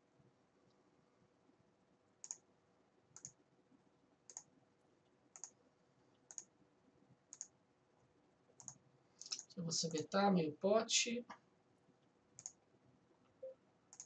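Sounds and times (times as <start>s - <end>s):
computer mouse clicking: 2.2s - 2.5s, 3.1s - 3.4s, 4.3s - 4.5s, 5.3s - 6.6s, 7.3s - 7.6s, 8.6s - 9.5s, 12.4s - 12.6s.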